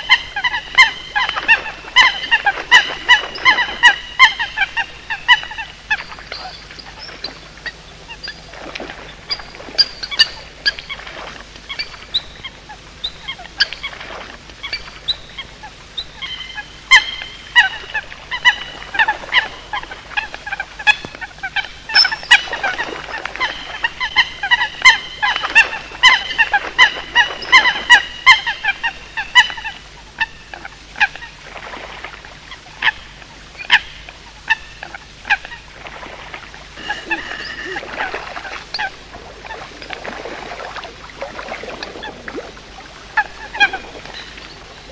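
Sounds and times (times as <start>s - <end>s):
coots calling: 0.0s - 8.7s, 14.6s - 31.4s, 36.7s - 40.4s.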